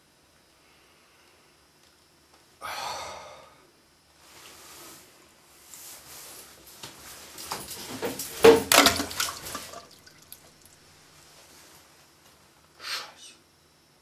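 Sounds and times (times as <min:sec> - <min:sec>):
water splashing in toilet bowl: 0:07.9 - 0:10.8.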